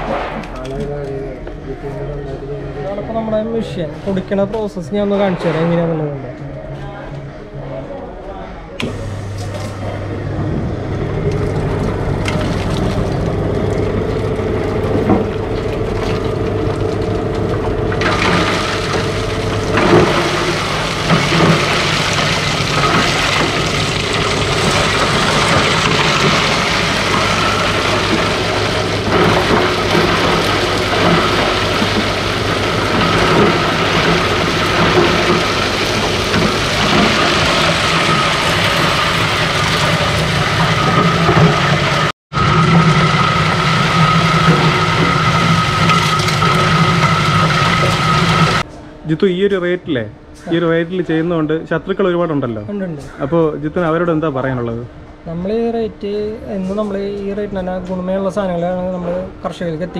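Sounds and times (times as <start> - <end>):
machine motor hum: 6.3 - 49.6
grinding rattle: 11.0 - 48.6.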